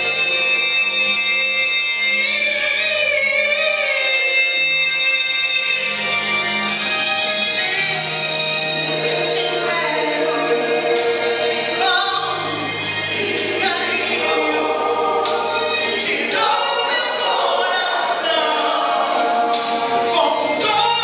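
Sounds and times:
choir singing in harmony: 0:06.6 - 0:21.0.

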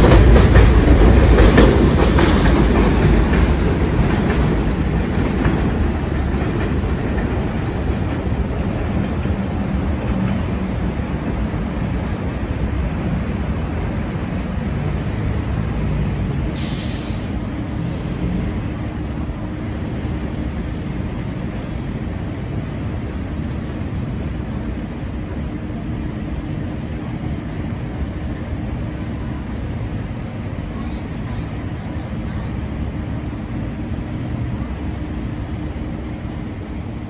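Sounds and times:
train rumbling on steel track: 0:00.0 - 0:37.0
short hiss: 0:16.6 - 0:17.3.

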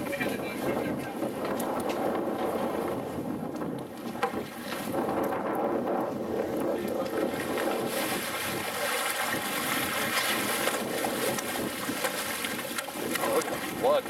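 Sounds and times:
rushing water and boat noise: 0:00.0 - 0:14.0
fish thrashing and splashing: 0:07.2 - 0:14.0.

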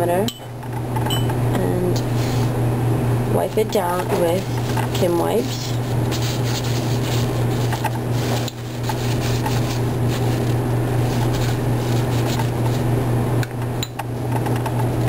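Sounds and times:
low hum: 0:00.0 - 0:15.0
tissue rubbing over glass: 0:04.4 - 0:12.9.

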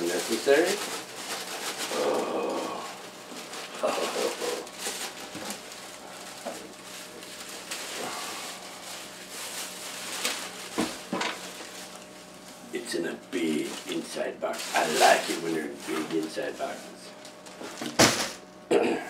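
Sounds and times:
wrapping paper rustling: 0:00.0 - 0:18.4
murmured vocal sounds: 0:01.9 - 0:03.0, 0:03.6 - 0:04.7
handling knocks in cardboard box: 0:10.2 - 0:11.4, 0:17.5 - 0:18.4.

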